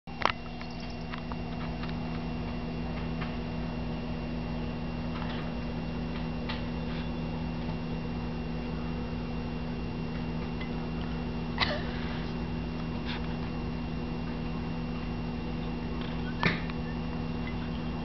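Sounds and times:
low electrical hum: 0:00.1 - 0:18.0.

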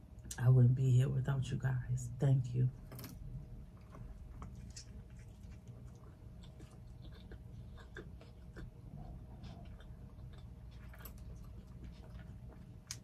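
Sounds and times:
person chewing food: 0:03.2 - 0:13.0.

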